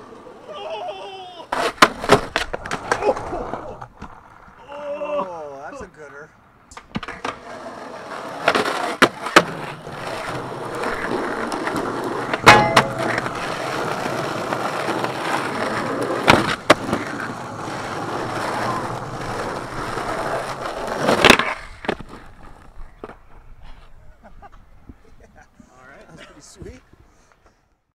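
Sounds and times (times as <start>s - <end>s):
skateboard wheels rolling on asphalt: 0.0s - 25.4s
skateboard clacks: 1.5s - 4.5s, 6.7s - 23.2s.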